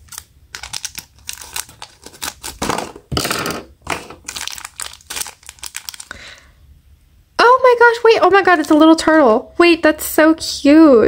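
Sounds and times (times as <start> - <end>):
scissors snipping plastic wrapper: 0.0 - 3.0, 3.9 - 6.1
plastic wrapper crinkling: 0.0 - 6.4.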